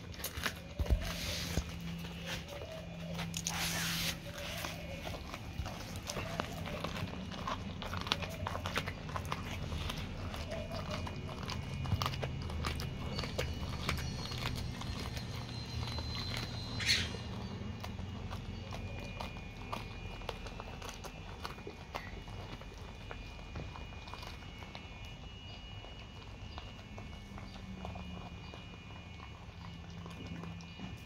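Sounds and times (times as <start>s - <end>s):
dog chewing fish bone: 0.0s - 31.0s.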